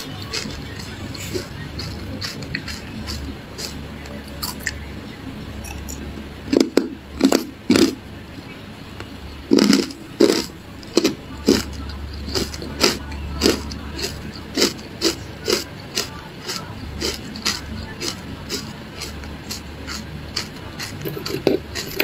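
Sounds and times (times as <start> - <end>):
crunching ice being chewed: 0.0 - 4.8, 6.5 - 8.0, 9.5 - 22.0.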